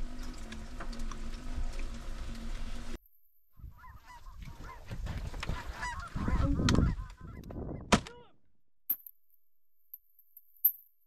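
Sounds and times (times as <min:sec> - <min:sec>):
geese honking: 0:03.6 - 0:07.5.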